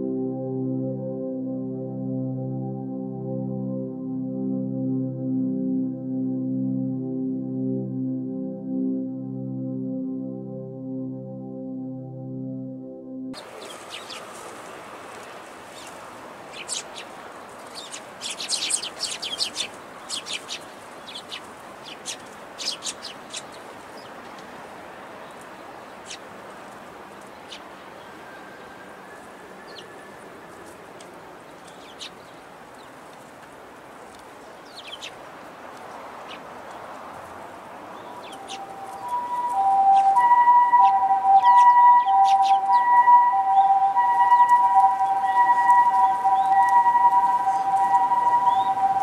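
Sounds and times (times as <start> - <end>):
sparrow chirping: 13.4 - 14.5, 15.7 - 24.2, 26.0 - 26.2, 27.3 - 27.7, 31.6 - 33.0, 34.6 - 35.2, 36.2 - 36.5, 37.9 - 49.0
steady background noise: 13.4 - 49.0.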